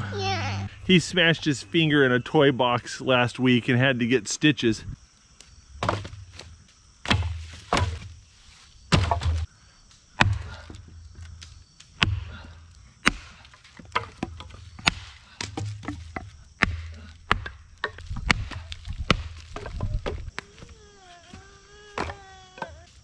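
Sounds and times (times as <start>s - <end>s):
axe chopping firewood: 5.8s - 6.2s, 7.0s - 8.1s, 8.9s - 9.5s, 10.2s - 10.8s, 12.0s - 20.4s.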